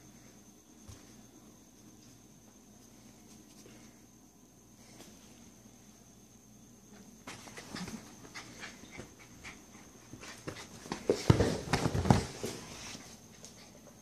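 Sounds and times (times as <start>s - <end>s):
knocks and scuffles: 7.2s - 13.6s.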